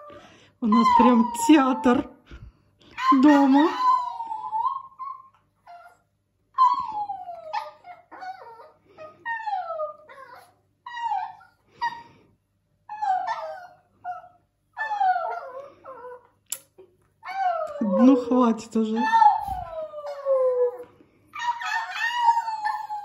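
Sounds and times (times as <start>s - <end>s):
small dog howling: 19.0s - 23.0s.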